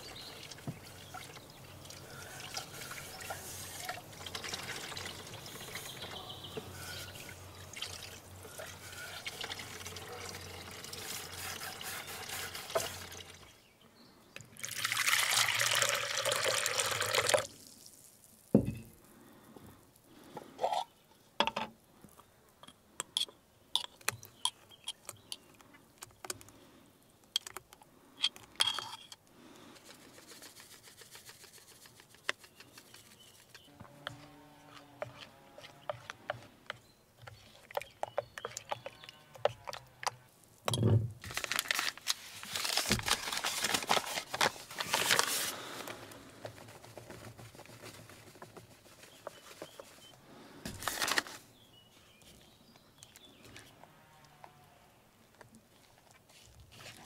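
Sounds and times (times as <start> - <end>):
water pouring into a bowl: 0.0 - 5.9, 7.2 - 13.4, 14.6 - 18.1
low outdoor background: 0.0 - 57.0.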